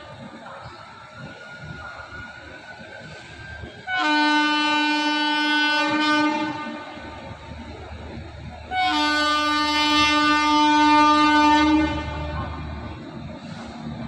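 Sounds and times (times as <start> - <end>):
locomotive horn blasts: 3.9 - 7.0, 8.7 - 12.6.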